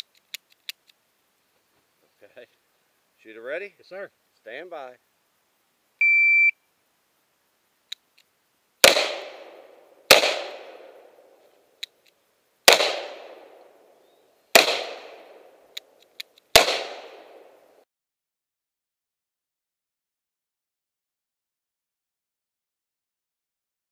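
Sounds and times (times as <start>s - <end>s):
faint clicks: 0.0s - 1.0s, 7.9s - 8.3s
shot timer beep: 6.0s - 6.6s
revolver gunshots with echo: 8.8s - 11.1s, 12.7s - 13.6s, 14.5s - 15.6s, 16.5s - 17.6s.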